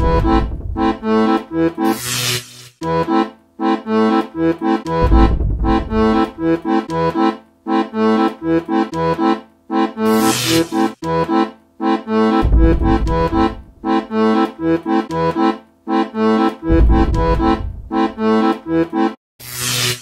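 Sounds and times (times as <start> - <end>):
bouncy background music: 0.0 - 2.0, 2.8 - 19.2
deep low rumble: 5.0 - 6.5, 16.7 - 18.2.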